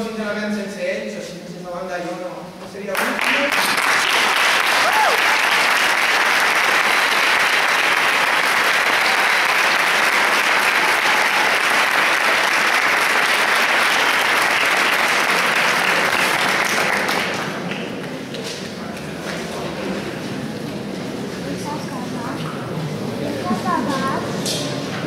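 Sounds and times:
audience applauding: 0:02.9 - 0:18.3.

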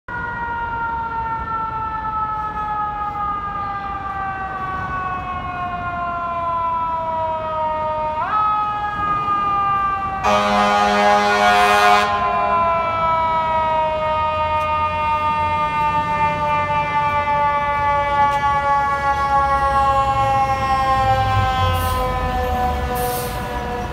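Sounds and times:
fire engine siren winding: 0:00.1 - 0:23.9
air horn blast: 0:10.2 - 0:12.5.

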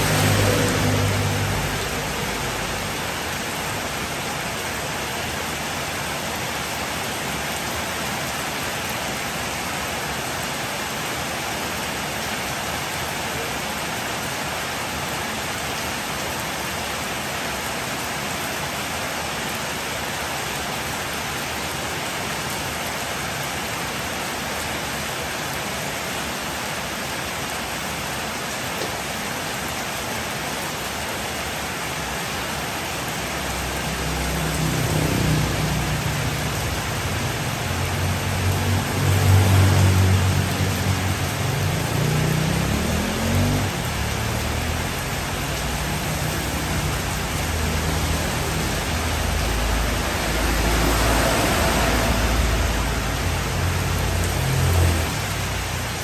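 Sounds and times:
heavy rain on a street: 0:00.0 - 0:56.0.

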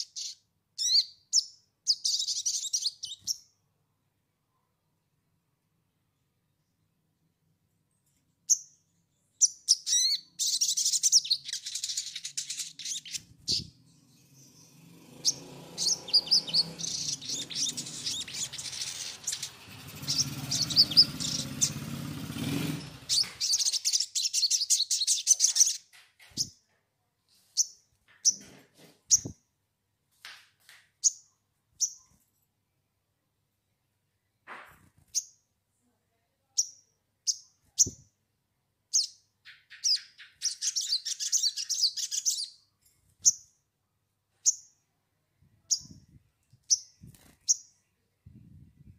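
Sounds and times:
songbird chirping and twittering: 0:00.0 - 0:03.7, 0:08.1 - 0:29.4, 0:30.3 - 0:32.2, 0:36.5 - 0:38.2, 0:38.8 - 0:43.6, 0:44.3 - 0:48.9.

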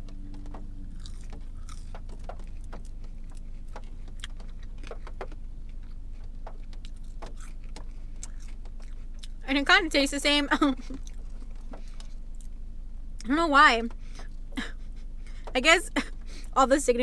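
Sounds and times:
steady low hum: 0:00.0 - 0:17.0
chewing mouth clicks: 0:00.1 - 0:09.4.

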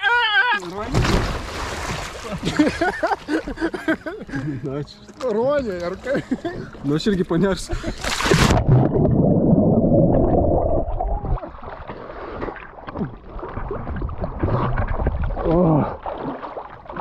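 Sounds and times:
water splashing around swimmer: 0:00.6 - 0:03.5, 0:07.8 - 0:09.0, 0:11.1 - 0:17.0.

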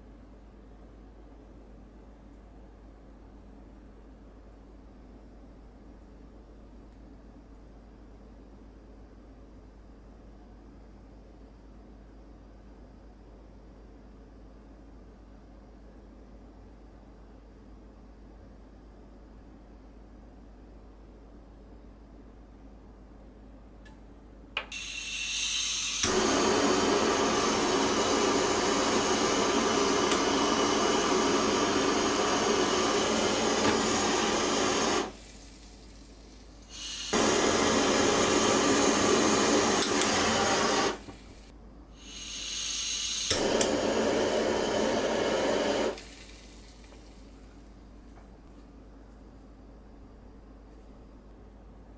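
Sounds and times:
torch ignition click: 0:24.6 - 0:35.2, 0:36.7 - 0:41.3, 0:42.1 - 0:47.2
kitchen torch flame hissing: 0:24.6 - 0:47.7.

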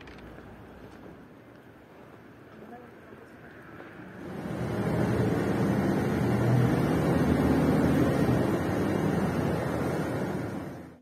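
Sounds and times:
loud steady rushing noise: 0:03.6 - 0:11.0.

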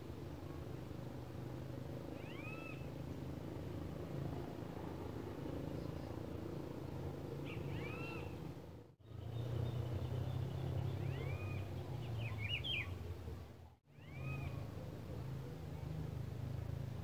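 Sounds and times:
bird singing whistled notes: 0:02.2 - 0:02.9, 0:07.4 - 0:08.4, 0:09.0 - 0:13.0.

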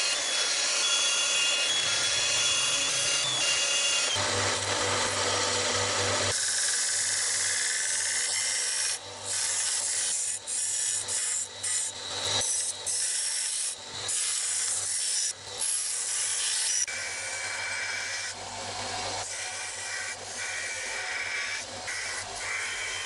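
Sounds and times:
belt sander motor hum: 0:00.0 - 0:09.3.

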